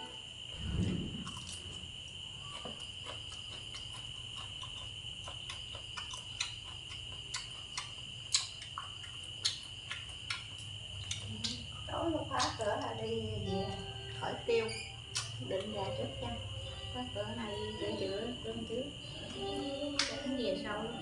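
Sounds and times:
low hum: 0:00.0 - 0:02.8
insect trill: 0:00.0 - 0:21.0
chewing: 0:00.9 - 0:13.0, 0:15.0 - 0:15.7.

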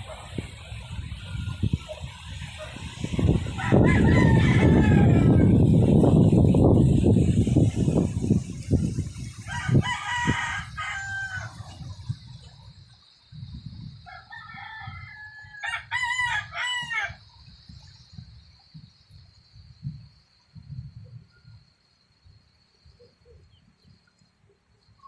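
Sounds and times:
rooster crowing: 0:03.4 - 0:05.6, 0:09.5 - 0:11.7, 0:14.0 - 0:17.3.

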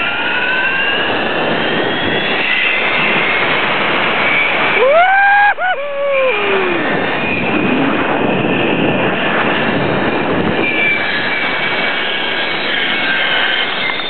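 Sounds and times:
wind on microphone: 0:00.0 - 0:14.0
man whooping: 0:04.8 - 0:06.9
pulleys whirring on steel cable: 0:10.5 - 0:14.0.

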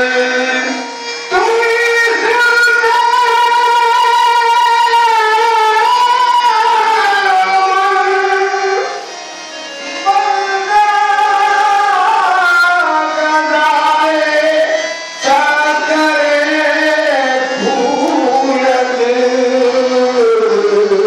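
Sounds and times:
tabla: 0:00.0 - 0:21.0
voices singing held notes: 0:13.0 - 0:20.4.

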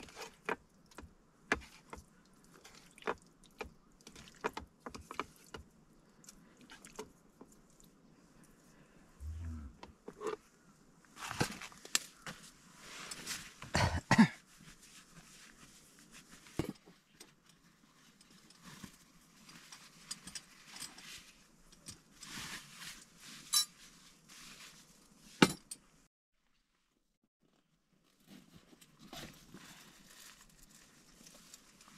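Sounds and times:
rustling: 0:17.7 - 0:25.4, 0:27.4 - 0:31.9.

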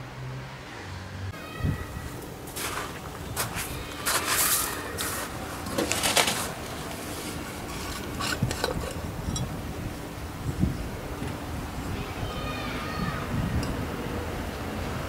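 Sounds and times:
metal scrapes and clinks: 0:07.2 - 0:09.5.

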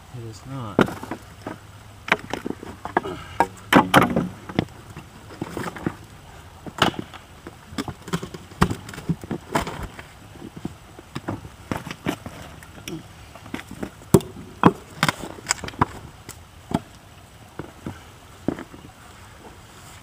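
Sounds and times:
wooden knocks and clatter: 0:00.8 - 0:06.0, 0:06.6 - 0:12.9.

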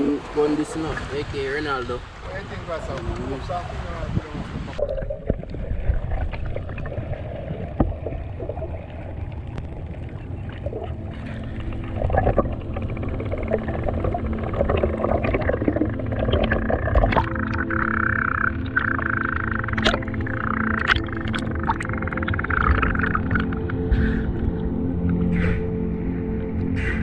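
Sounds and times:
muffled underwater rumble: 0:02.3 - 0:27.0
underwater clicks and knocks: 0:07.7 - 0:08.7, 0:12.0 - 0:17.9, 0:18.6 - 0:23.8.

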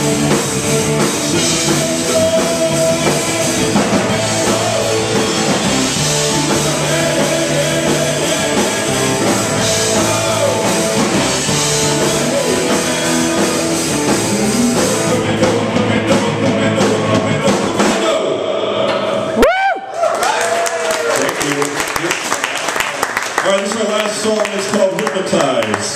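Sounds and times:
electric guitars: 0:00.0 - 0:18.0
bass guitar: 0:00.0 - 0:18.3
drum kit: 0:00.0 - 0:19.0
person singing: 0:00.8 - 0:19.4.

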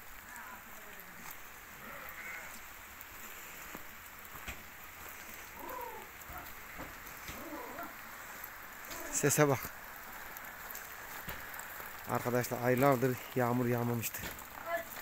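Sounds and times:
rain on metal sheeting: 0:00.0 - 0:15.0
sheep bleating: 0:01.8 - 0:02.6.

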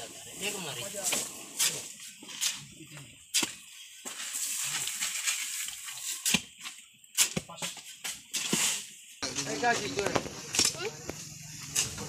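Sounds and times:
hoe scraping and chopping cement mix: 0:03.3 - 0:12.0.

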